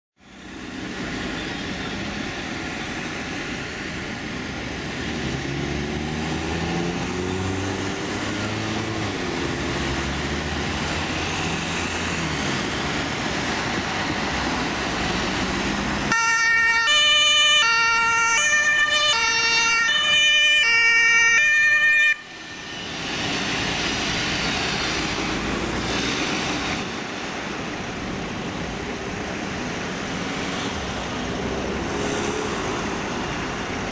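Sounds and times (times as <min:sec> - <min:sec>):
vehicle engine and road noise: 0:00.2 - 0:33.9
two-tone siren: 0:16.1 - 0:22.8.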